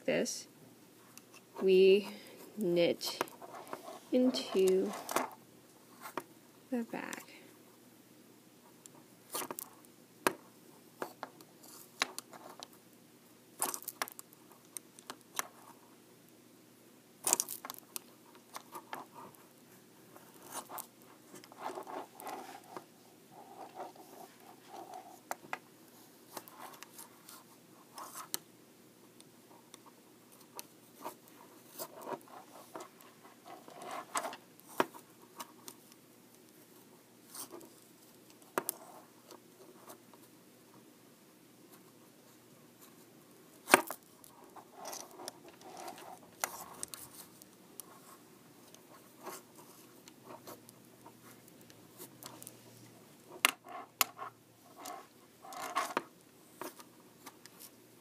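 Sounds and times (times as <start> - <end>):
soft scraping: 20.1 - 25.3.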